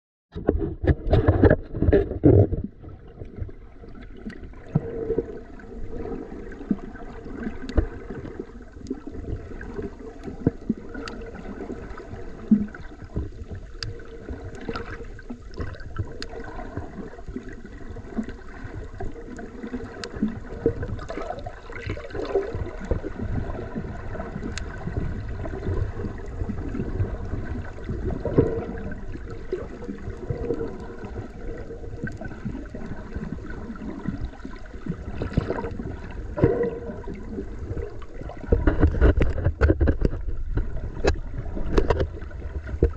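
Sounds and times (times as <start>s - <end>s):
underwater rumble and sloshing: 0.3s - 42.9s
sharp clicks and pops: 38.5s - 42.9s.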